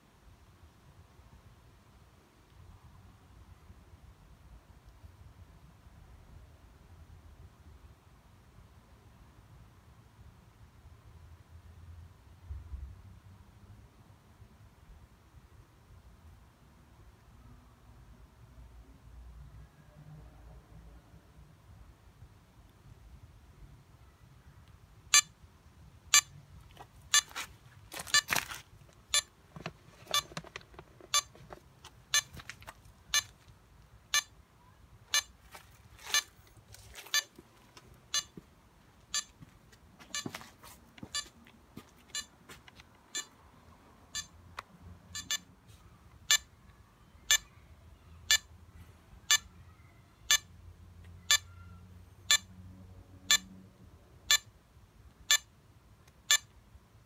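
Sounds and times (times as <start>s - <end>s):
short sharp electronic beeps: 25.1s - 25.3s, 35.1s - 35.4s, 39.1s - 39.3s, 45.2s - 45.5s
rustling handling noises: 26.6s - 33.6s, 35.3s - 38.6s, 39.4s - 43.1s.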